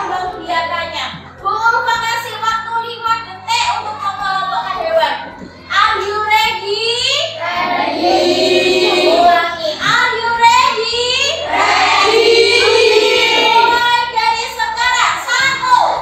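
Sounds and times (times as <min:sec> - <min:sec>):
children singing: 0:07.4 - 0:09.4, 0:11.4 - 0:13.8.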